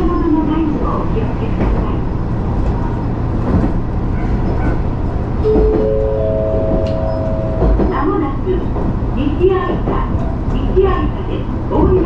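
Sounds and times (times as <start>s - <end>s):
railcar engine and wheels drone: 0.0s - 12.0s
three-note rising chime: 5.5s - 7.7s.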